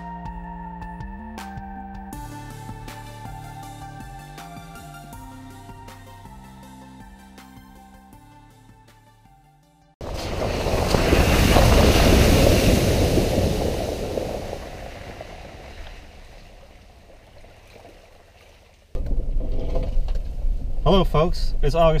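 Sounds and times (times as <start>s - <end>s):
river flowing over stones: 10.0s - 18.8s
vehicle rumbling on rough road: 10.0s - 22.0s.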